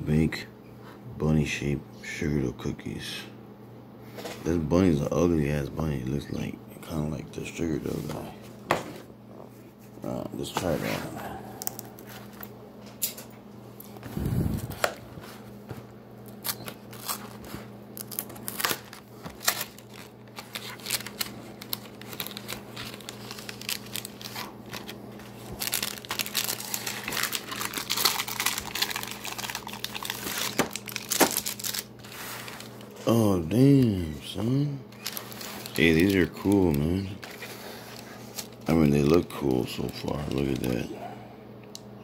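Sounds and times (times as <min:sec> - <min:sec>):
plastic packaging crinkling: 0:16.3 - 0:34.1, 0:34.9 - 0:40.9.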